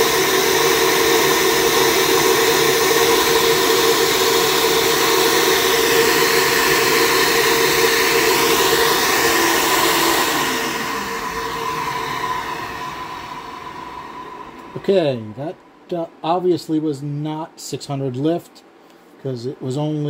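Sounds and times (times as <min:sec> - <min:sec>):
vacuum motors running: 0:00.0 - 0:15.5
motors spinning down whine: 0:00.0 - 0:15.6.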